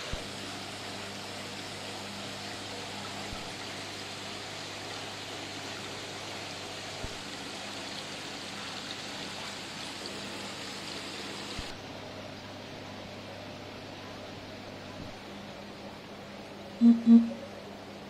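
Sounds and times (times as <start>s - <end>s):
aquarium water bubbling: 0.0s - 18.0s
low even hum: 11.6s - 18.0s.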